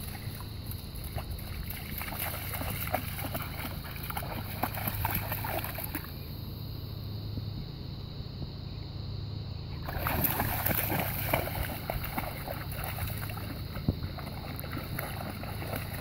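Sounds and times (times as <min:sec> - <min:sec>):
dog splashing through water: 0:00.0 - 0:06.2, 0:09.8 - 0:16.0.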